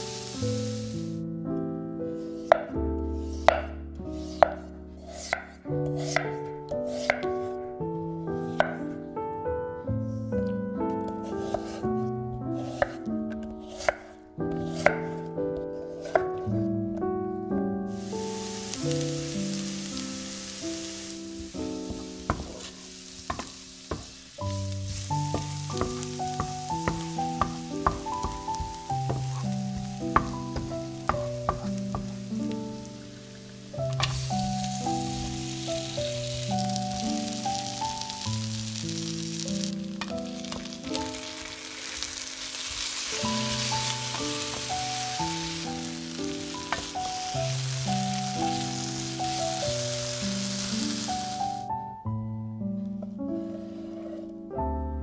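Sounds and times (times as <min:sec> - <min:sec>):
onion sizzling in oil: 0:00.0 - 0:01.2, 0:06.0 - 0:06.3, 0:17.9 - 0:51.7
soft background music: 0:00.0 - 0:55.0
wooden spoon scraping a pan: 0:03.2 - 0:07.5, 0:08.5 - 0:08.8, 0:11.2 - 0:15.1, 0:15.7 - 0:16.4, 0:20.7 - 0:37.6, 0:39.6 - 0:47.1, 0:53.4 - 0:54.3
wooden spatula stirring: 0:04.2 - 0:06.3, 0:11.2 - 0:14.1, 0:15.8 - 0:16.2, 0:20.8 - 0:38.1, 0:40.0 - 0:47.6.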